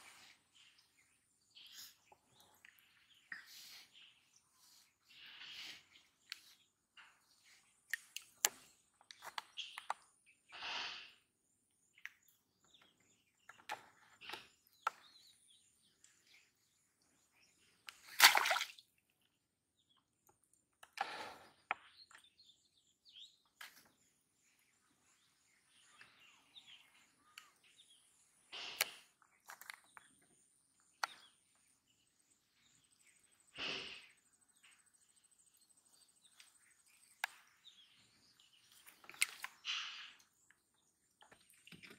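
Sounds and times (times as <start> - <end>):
bird chirps: 19.8 - 41.9.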